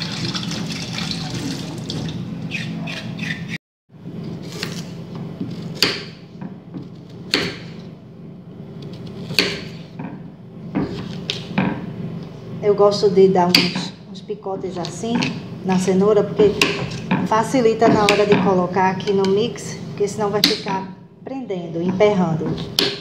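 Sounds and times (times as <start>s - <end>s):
tap water running into sink: 0.0s - 2.2s.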